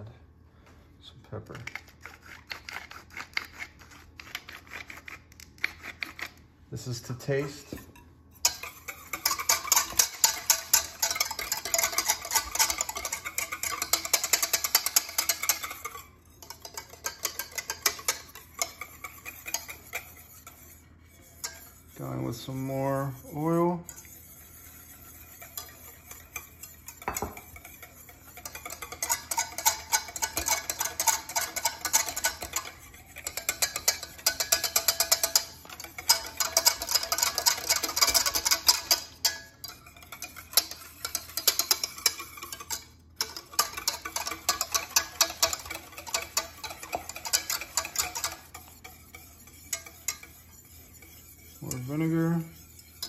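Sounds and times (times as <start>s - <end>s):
wire whisk clicking against pot: 8.4s - 20.6s, 25.3s - 53.0s.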